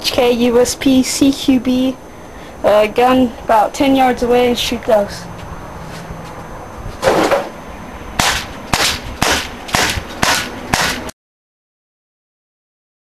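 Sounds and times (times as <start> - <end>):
airsoft pistol shots: 8.2 - 11.1.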